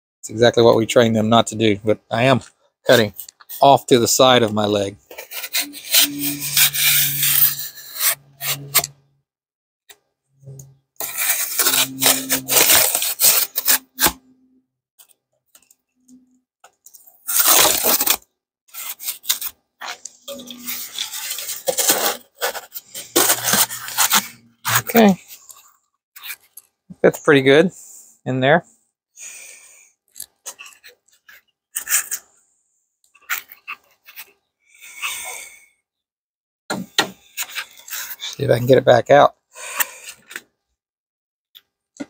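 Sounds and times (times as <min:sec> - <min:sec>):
knife cutting foam board: 0:11.0 - 0:14.2.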